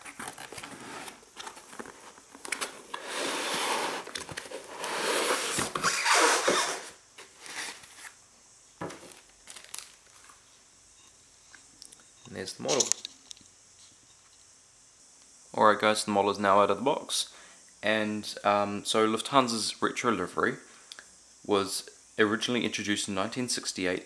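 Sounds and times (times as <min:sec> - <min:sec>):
foam rubbing against cardboard: 0:03.0 - 0:07.8.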